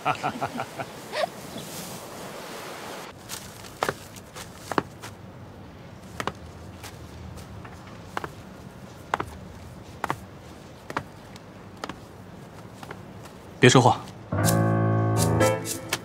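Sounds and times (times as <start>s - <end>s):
outdoor hiss: 0.0s - 6.0s.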